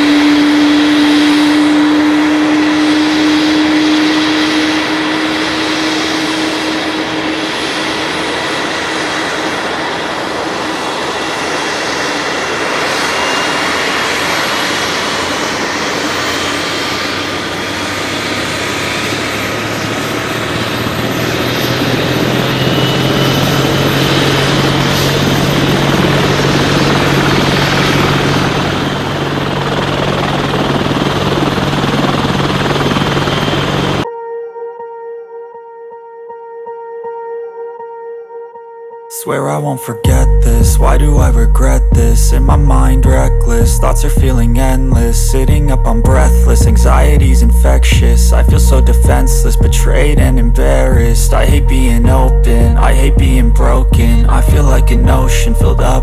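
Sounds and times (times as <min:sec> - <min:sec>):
low hum: 0:00.0 - 0:34.1, 0:40.0 - 0:56.0
rc helicopter motor whine: 0:00.0 - 0:34.1.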